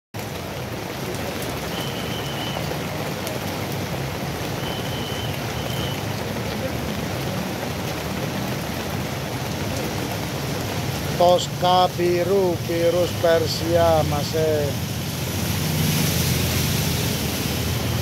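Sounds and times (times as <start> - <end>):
steady outdoor hiss: 10.2 - 18.0.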